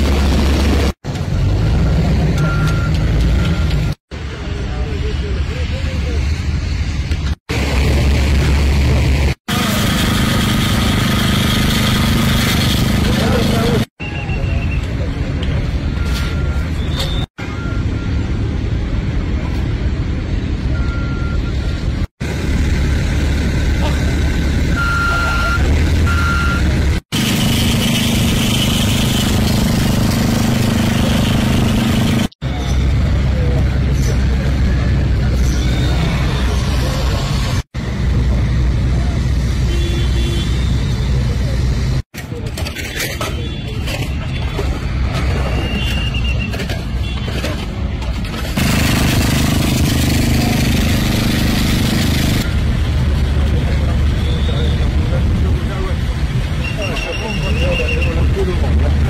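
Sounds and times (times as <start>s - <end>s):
engine humming: 47.8s - 56.5s
rumbling machine: 48.2s - 55.7s.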